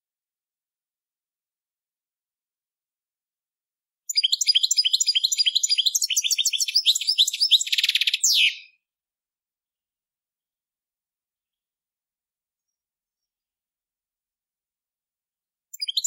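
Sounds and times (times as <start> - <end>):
finch singing: 4.1 - 8.8, 15.7 - 16.0.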